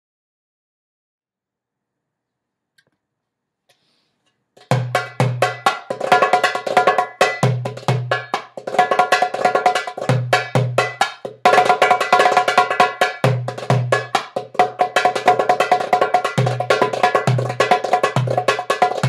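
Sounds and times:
darbuka played with hands: 0:04.5 - 0:19.0.

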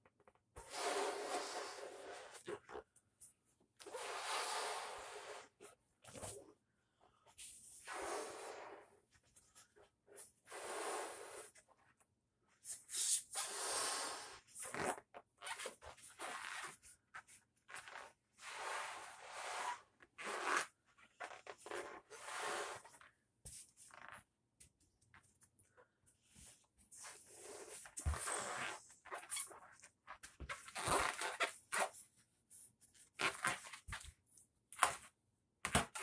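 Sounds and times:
breaths blown into balloon: 0:00.6 - 0:02.5, 0:03.8 - 0:05.6, 0:07.8 - 0:09.0, 0:10.5 - 0:11.6, 0:12.7 - 0:15.0.

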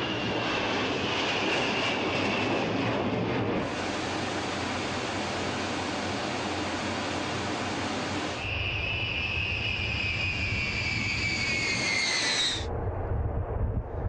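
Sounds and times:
jet engines whining: 0:00.0 - 0:14.0
low rumble: 0:12.6 - 0:14.0.

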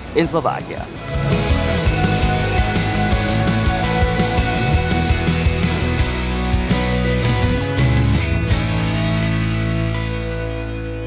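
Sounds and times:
music with drum beat and bass: 0:00.7 - 0:10.4.

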